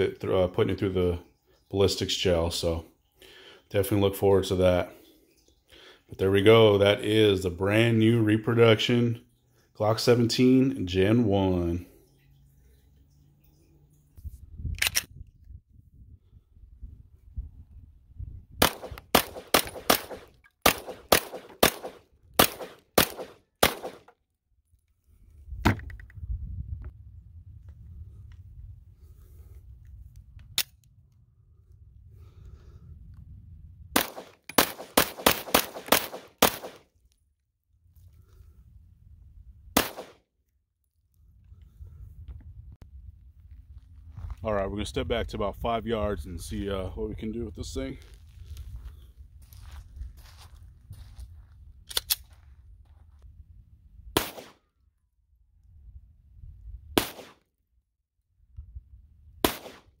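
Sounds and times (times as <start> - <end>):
pistol shots: 18.6 - 24.1, 34.0 - 36.8, 39.8 - 40.2, 54.2 - 54.6, 57.0 - 57.4, 59.4 - 60.0.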